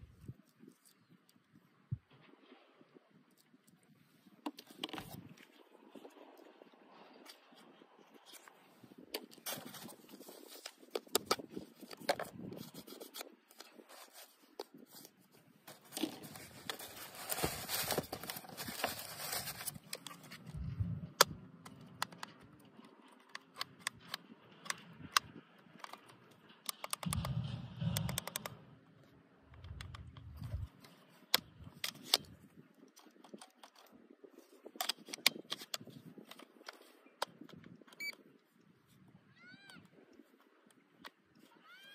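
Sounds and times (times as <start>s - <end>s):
foam scraping and rustling: 9.4s - 20.8s
plastic clicks and taps: 21.1s - 22.5s, 23.3s - 28.6s.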